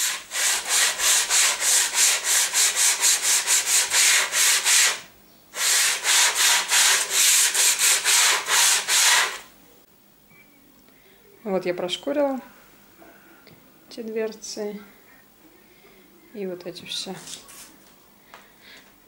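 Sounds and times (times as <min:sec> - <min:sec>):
sandpaper scratching plywood: 0:00.0 - 0:09.5.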